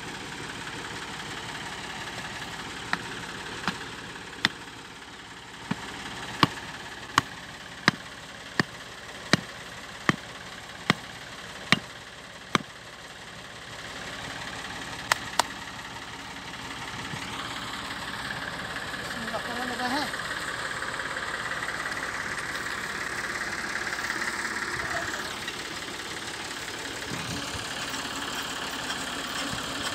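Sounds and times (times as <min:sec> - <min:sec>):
diesel engine running: 0:00.0 - 0:29.9.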